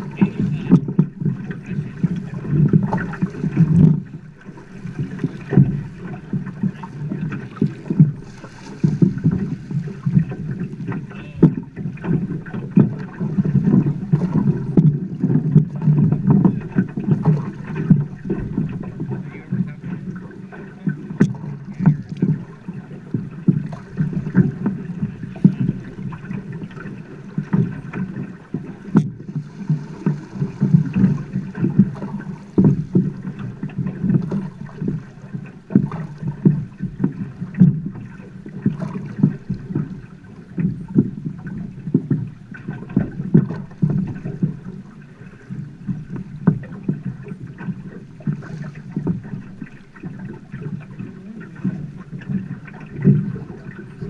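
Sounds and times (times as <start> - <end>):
knocks and splashes: 0.0 - 54.0
water slapping against boat hull: 0.0 - 54.0.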